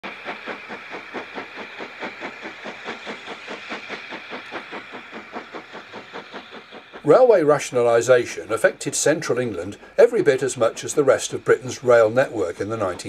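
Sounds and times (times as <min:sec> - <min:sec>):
steam hiss: 0:00.0 - 0:13.0
steam locomotive exhaust beats: 0:00.0 - 0:13.0.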